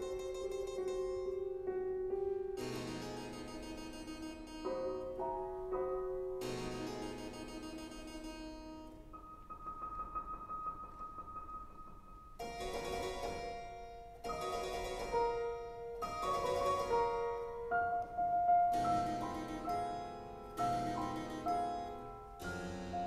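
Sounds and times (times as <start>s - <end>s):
harpsichord chords: 0.0s - 9.9s, 12.4s - 23.0s
piano: 0.0s - 23.0s.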